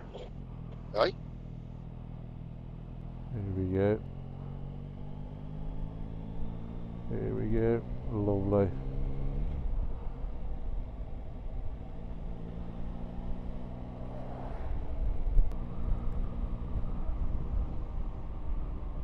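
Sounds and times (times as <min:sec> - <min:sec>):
wind rumble on microphone: 0:14.6 - 0:19.0.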